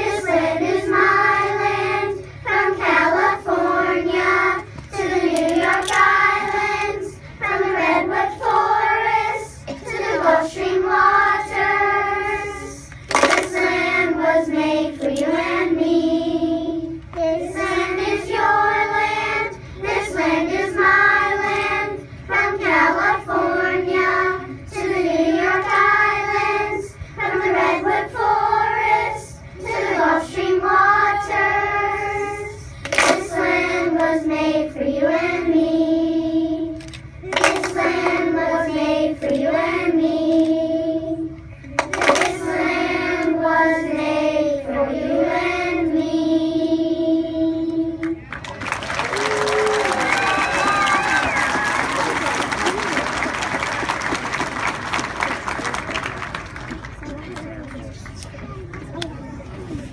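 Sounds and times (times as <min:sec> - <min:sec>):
children's choir singing: 0:00.0 - 0:48.2.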